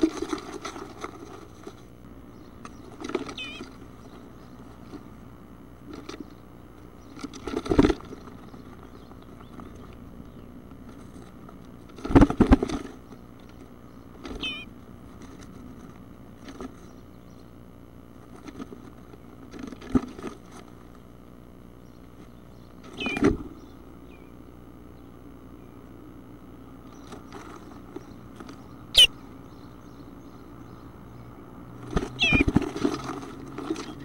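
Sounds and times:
nestlings scrabbling and knocking: 0.0 - 5.2, 5.8 - 17.4, 18.1 - 21.0, 26.8 - 29.1, 31.8 - 34.0
steady low hum: 0.0 - 34.0
chick chirps: 2.7 - 3.8, 14.3 - 14.7, 22.9 - 23.4, 29.0 - 29.2, 32.2 - 32.6.

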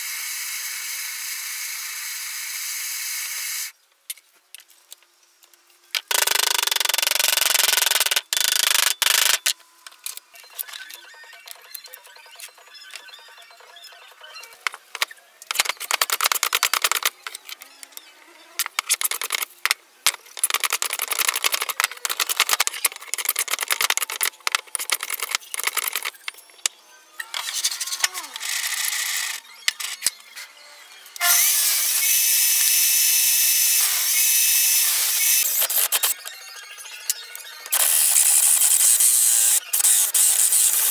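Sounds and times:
table saw cutting wood: 31.2 - 36.1.

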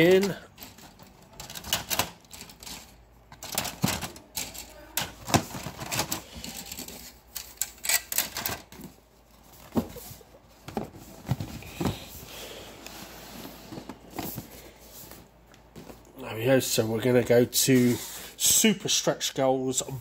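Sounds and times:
plastic pieces clattering: 0.0 - 8.8.

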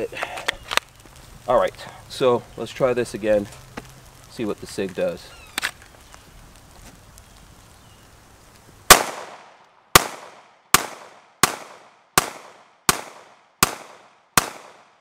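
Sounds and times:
pistol shots echoing: 8.9 - 15.0.

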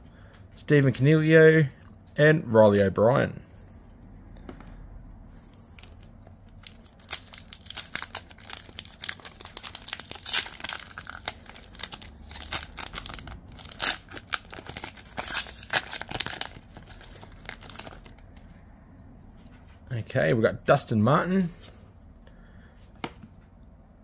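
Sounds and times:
foil wrapper tearing and crinkling: 5.8 - 18.2.

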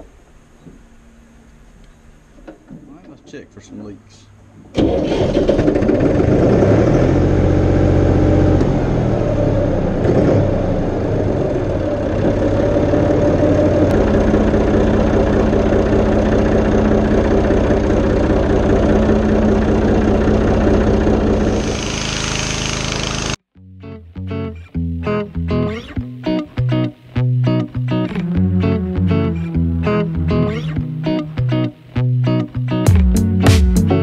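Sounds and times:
diesel tractor engine running: 4.8 - 23.4
hiss: 21.4 - 23.4.

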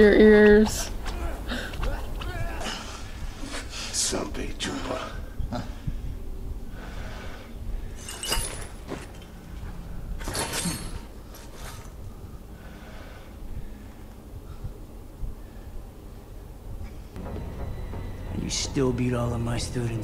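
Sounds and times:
low background rumble: 0.0 - 20.0
glass breaking: 8.0 - 9.2.

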